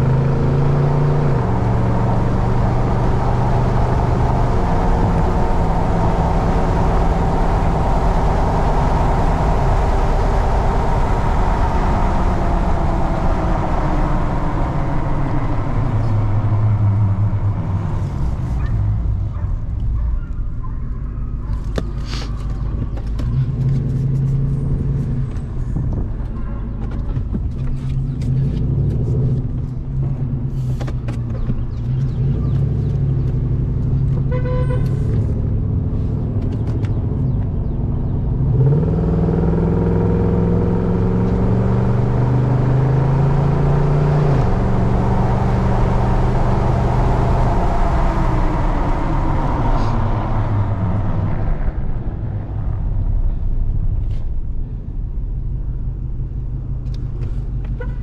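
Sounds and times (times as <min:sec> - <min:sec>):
truck engine: 0:00.0 - 0:58.0
tyre and wind noise: 0:01.4 - 0:38.1.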